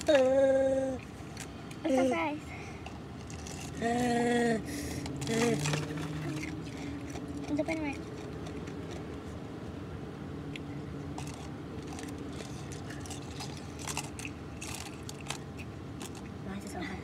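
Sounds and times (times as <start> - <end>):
low hum inside car: 0.0 - 2.6
person chewing sandwich: 4.9 - 9.4, 10.5 - 16.4.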